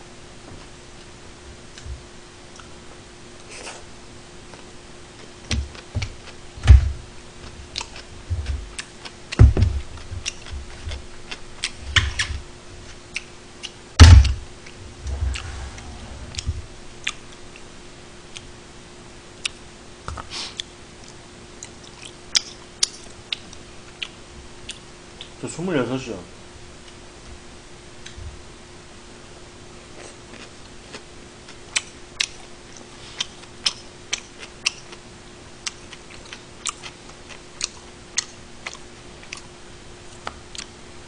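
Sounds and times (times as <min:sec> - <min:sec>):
faint steady hum: 0:00.0 - 0:41.0
person chewing food: 0:04.5 - 0:06.4, 0:07.4 - 0:13.8, 0:14.6 - 0:17.4, 0:20.2 - 0:25.3, 0:29.9 - 0:35.0, 0:35.6 - 0:39.5, 0:40.1 - 0:40.7
low thumps: 0:14.0 - 0:18.0.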